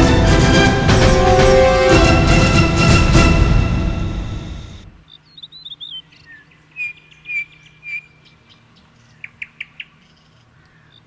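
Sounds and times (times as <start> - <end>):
bird chirps: 5.0 - 11.0
songbird warbling: 5.0 - 11.0.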